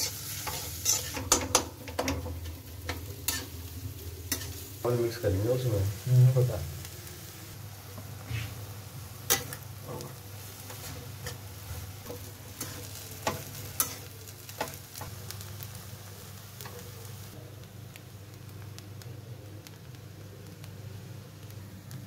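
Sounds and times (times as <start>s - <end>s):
spatula scraping rice in pan: 0.0s - 1.6s, 9.3s - 14.8s
frying sizzle: 0.0s - 22.0s.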